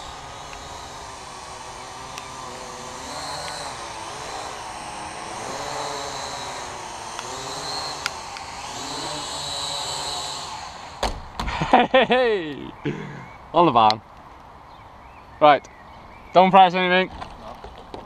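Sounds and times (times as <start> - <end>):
quadcopter propellers buzzing: 0.0 - 13.5.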